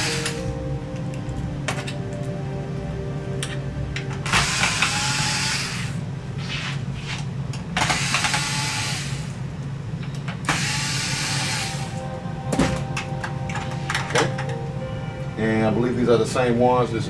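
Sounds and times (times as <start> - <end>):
electric screwdriver running: 4.3 - 6.0, 7.8 - 9.3, 10.5 - 11.9.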